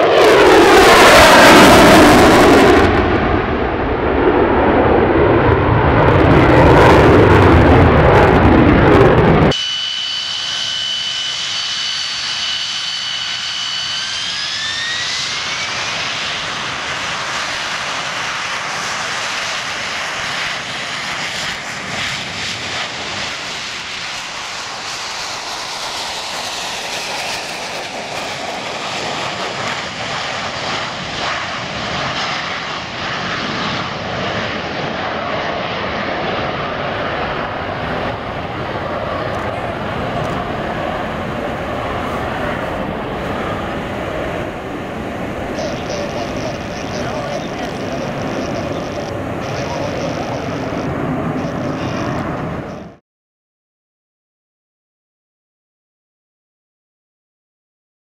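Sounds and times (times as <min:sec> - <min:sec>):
jet engine high whine: 0:00.0 - 0:53.0
jet passing: 0:00.0 - 0:53.0
jet rush: 0:00.0 - 0:53.0.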